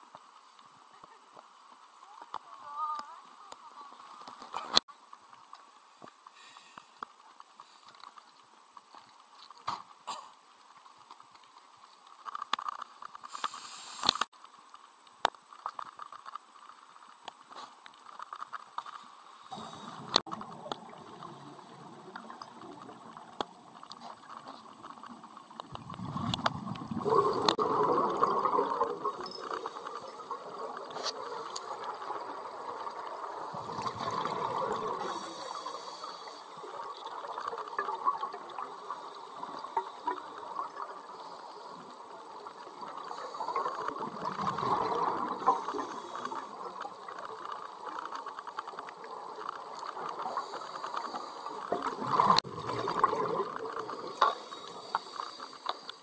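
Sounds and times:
diver's breath bubbling underwater: 0:25.8 - 0:30.8.

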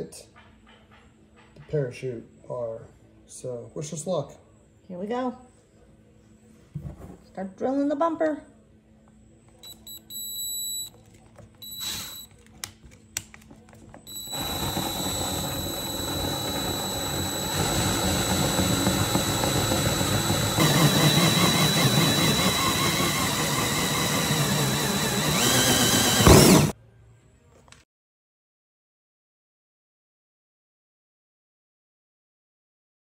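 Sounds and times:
drill hole saw cutting plastic: 0:14.1 - 0:26.7.

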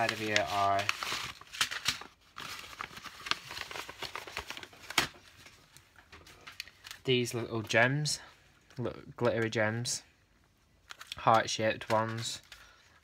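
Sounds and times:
wrapping paper rustling: 0:00.0 - 0:08.0.

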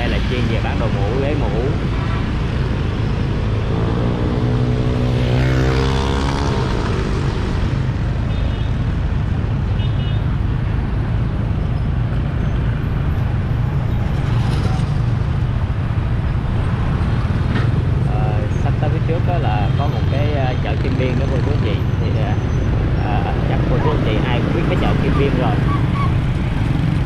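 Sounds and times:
engine speeding up: 0:00.0 - 0:08.0
rumble of traffic engines: 0:00.0 - 0:27.0.

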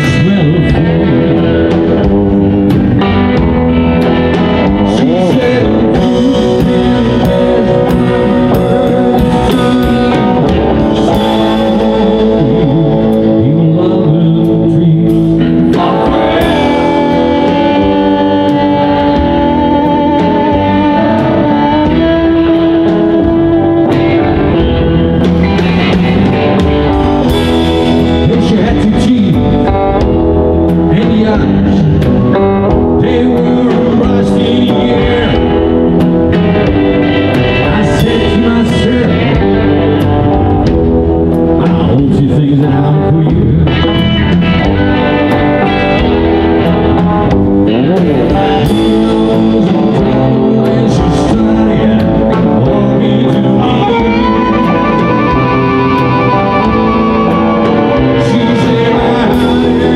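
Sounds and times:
drums: 0:00.0 - 0:59.9
electric guitars: 0:00.0 - 0:59.9
man singing: 0:00.0 - 0:59.9
harmonica: 0:53.5 - 0:59.9.

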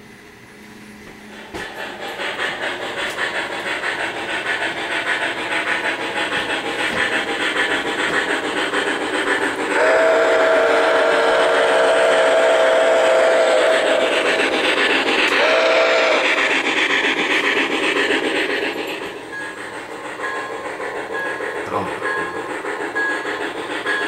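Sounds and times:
rushing steam and running noise: 0:00.7 - 0:24.0
steam locomotive chime whistle: 0:09.7 - 0:14.2, 0:15.3 - 0:16.4, 0:20.2 - 0:24.0.

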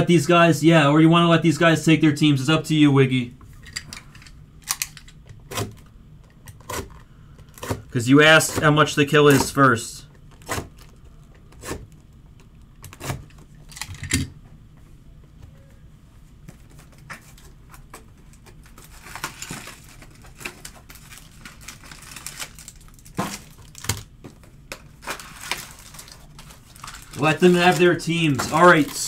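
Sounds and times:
rustling: 0:24.9 - 0:29.0.

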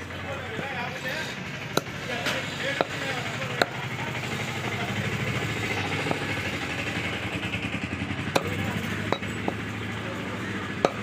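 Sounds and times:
engine running: 0:00.0 - 0:11.0
cleaver chopping on wooden block: 0:01.7 - 0:02.0, 0:02.8 - 0:03.8, 0:08.3 - 0:09.6, 0:10.8 - 0:11.0.

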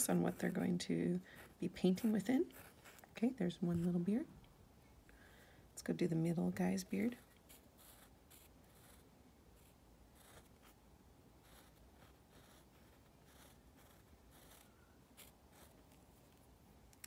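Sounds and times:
pencil scratching on wood: 0:00.0 - 0:04.1, 0:07.0 - 0:10.8, 0:11.4 - 0:16.0.

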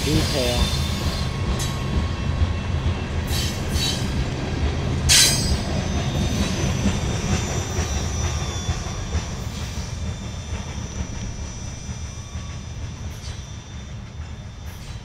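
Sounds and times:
train wheels rumbling on rail: 0:00.0 - 0:15.0
high-pitched wheel squeals: 0:05.1 - 0:15.0.

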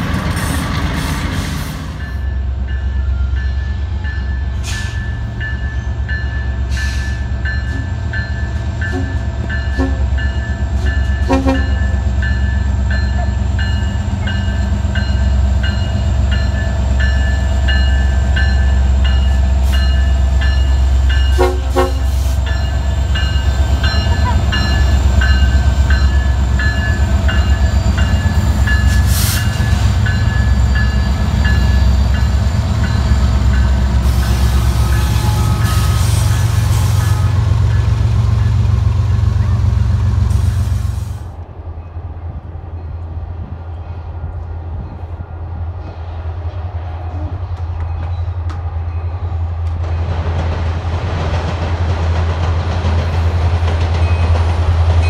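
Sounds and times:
diesel locomotives rumbling: 0:00.0 - 0:55.0
train horn: 0:08.9 - 0:10.2, 0:11.2 - 0:11.9, 0:21.3 - 0:22.4, 0:34.0 - 0:37.8.

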